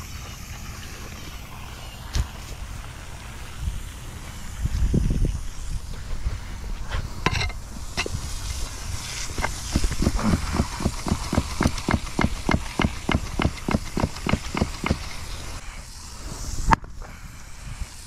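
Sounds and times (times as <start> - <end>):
pick mattock chopping concrete: 9.3 - 15.1.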